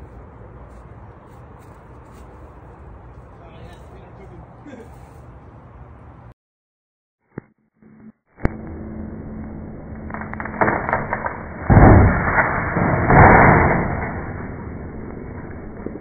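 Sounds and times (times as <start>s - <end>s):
tree limb cracking: 10.0s - 14.2s
branch crashing through leaves: 10.1s - 14.3s.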